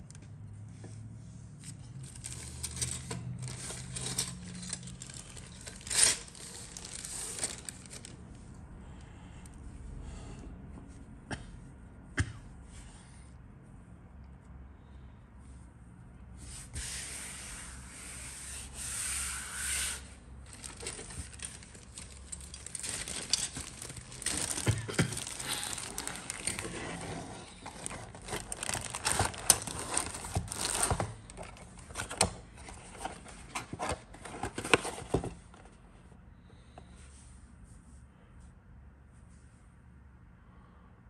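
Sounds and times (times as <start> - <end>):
rustling of plastic packaging: 1.6 - 8.4, 20.4 - 35.8.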